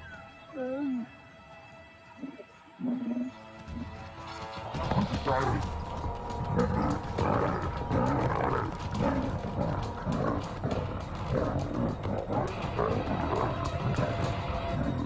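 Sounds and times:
lionesses growling and snarling: 2.2 - 3.9, 4.7 - 15.0.

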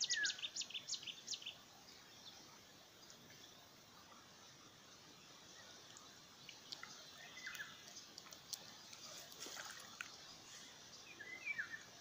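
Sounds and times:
soft steady hiss: 0.0 - 12.0
small bird chirping: 5.6 - 9.4
faint ticks: 5.8 - 10.2.

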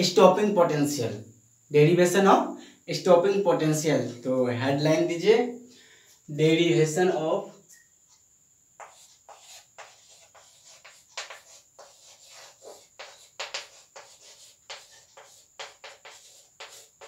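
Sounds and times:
chalk tapping and scraping on board: 8.8 - 17.0.

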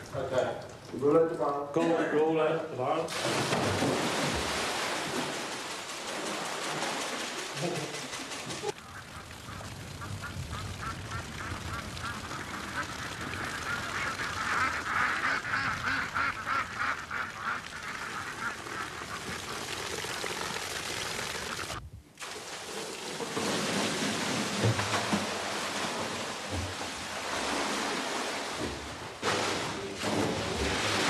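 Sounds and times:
liquid splashing on concrete floor: 3.1 - 8.8
ducks quacking: 7.6 - 19.7.

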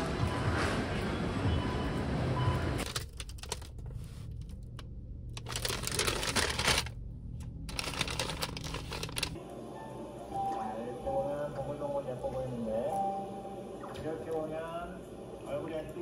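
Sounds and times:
paper bags crinkling: 2.8 - 4.7, 5.4 - 7.0, 7.6 - 9.4
low steady hum: 2.8 - 16.0.

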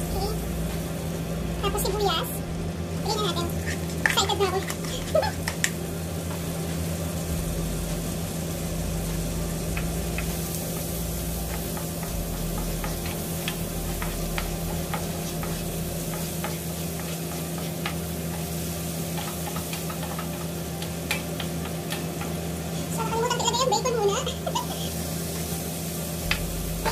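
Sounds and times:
onion sizzling in butter: 0.0 - 26.9
steady low hum: 0.0 - 26.9
spatula stirring and scraping: 3.3 - 6.8, 9.7 - 22.9.

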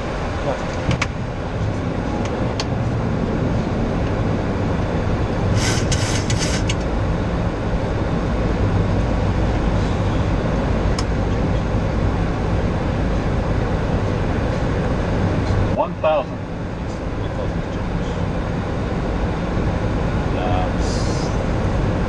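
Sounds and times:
airflow and engine drone: 0.0 - 22.0.

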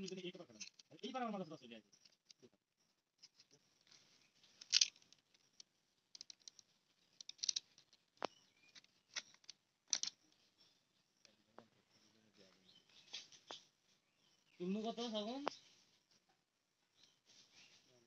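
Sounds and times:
leaf rustles: 17.1 - 18.0.

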